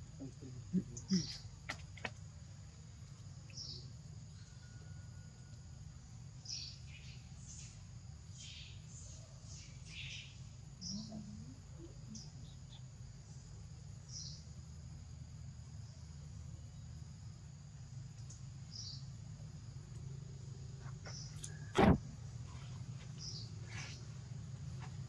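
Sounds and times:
low background hum: 0.0 - 25.0
sharp loud knock: 21.8 - 22.0.

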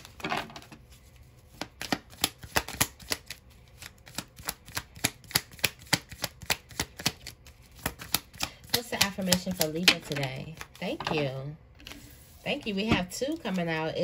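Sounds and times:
cards being shuffled by hand: 0.0 - 11.2.

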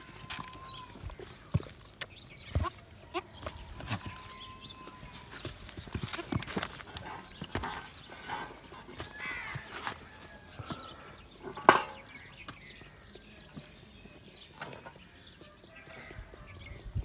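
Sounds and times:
hoof knocks on stony ground: 0.0 - 10.9.

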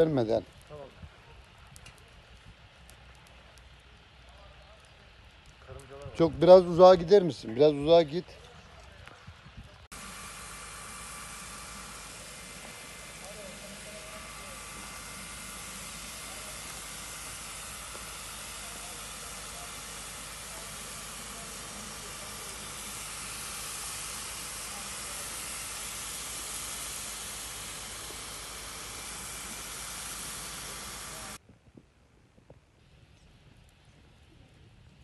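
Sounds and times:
steady hiss: 9.8 - 31.4.

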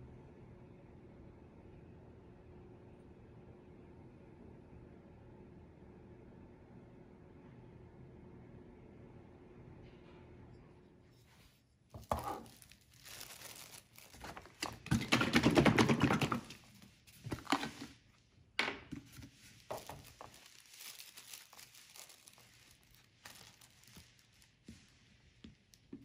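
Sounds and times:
plastic bag crinkling: 12.0 - 18.0, 19.0 - 24.9.

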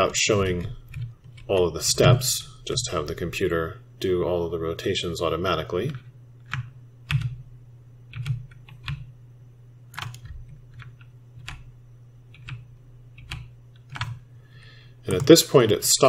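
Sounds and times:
steady low hum: 0.0 - 16.0
keyboard keystrokes clicking: 6.4 - 7.4, 8.1 - 9.1, 9.9 - 11.7, 12.3 - 12.6, 13.2 - 14.2.

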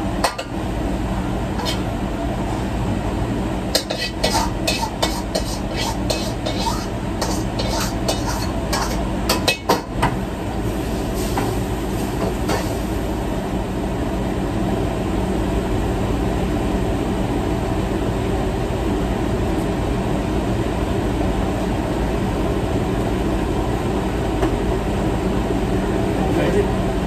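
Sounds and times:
wok range and exhaust hood rumble: 0.0 - 27.0
steel wok and utensils clinking: 3.8 - 9.9.

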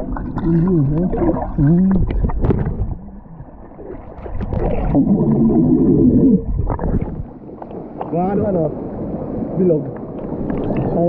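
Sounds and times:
water splashes and knocks: 0.0 - 5.0, 6.5 - 8.7, 9.8 - 11.0.

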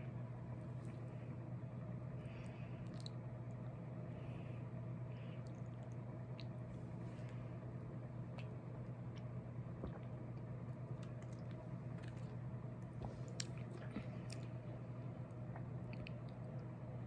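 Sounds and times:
steady low hum: 0.0 - 17.0
wet mouth sounds: 8.3 - 10.4
person sipping and swallowing: 9.8 - 10.2.

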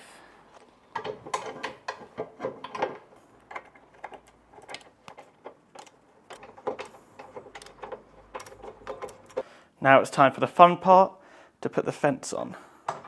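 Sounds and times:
small metallic clicks and knocks: 0.6 - 9.5.

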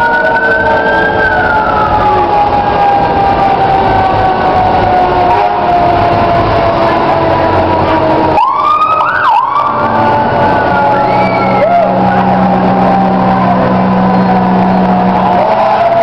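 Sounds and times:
fire engine sirens wailing: 0.0 - 16.0.

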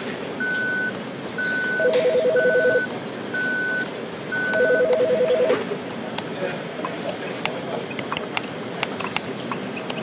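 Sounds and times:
high electronic beep: 0.4 - 5.5.

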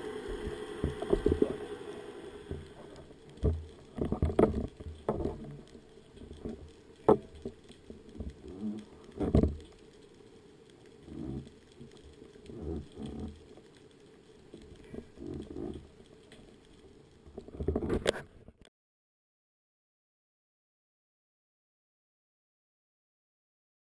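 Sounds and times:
rushes of moving water: 0.0 - 18.4
muffled underwater thumps: 0.3 - 1.6.

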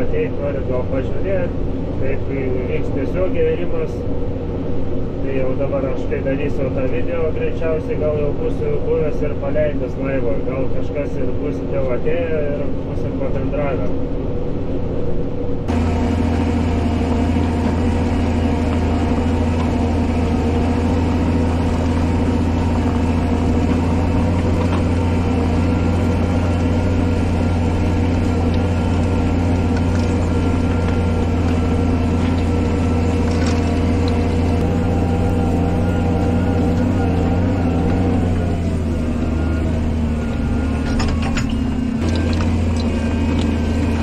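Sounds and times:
tractor diesel engine under load: 15.7 - 44.0.

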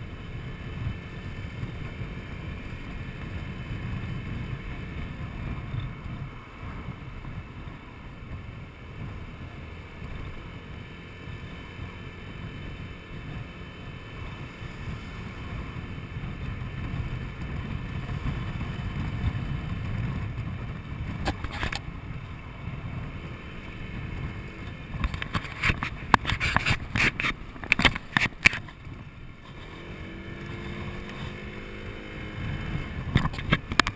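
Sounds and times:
scooter engine running: 0.0 - 33.9
wind rumbling on microphone: 0.0 - 33.9
loud sharp crackles and knocks: 25.0 - 28.8.

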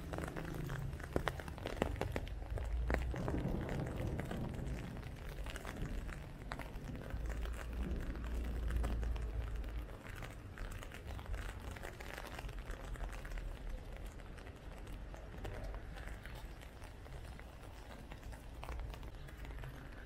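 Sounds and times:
heavy hail falling: 0.0 - 20.0
low rumble: 2.4 - 10.1.

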